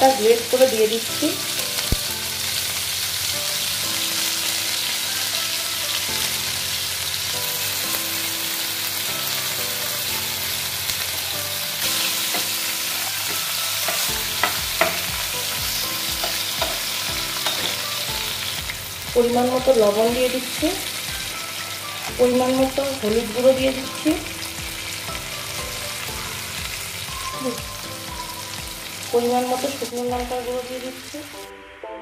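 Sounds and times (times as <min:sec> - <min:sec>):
oil sizzling in a frying pan: 0:00.0 - 0:31.5
spatula stirring and tapping pan: 0:12.1 - 0:17.9.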